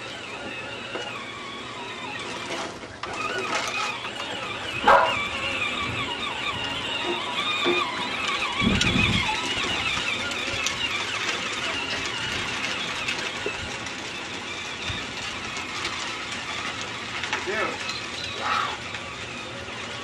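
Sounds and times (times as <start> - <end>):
electric toy tractor whirring: 0.0 - 20.0.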